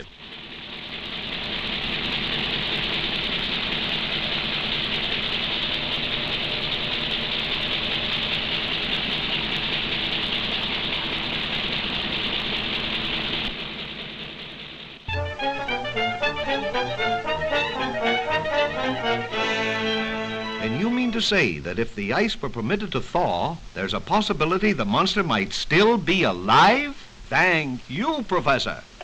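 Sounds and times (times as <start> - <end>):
steady hiss: 20.7 - 29.0.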